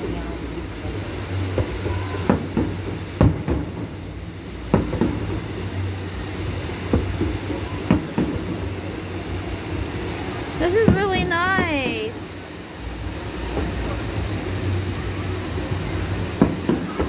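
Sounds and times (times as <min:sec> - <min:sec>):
firework shells booming: 0:01.6 - 0:04.0, 0:04.7 - 0:05.4, 0:16.4 - 0:17.0.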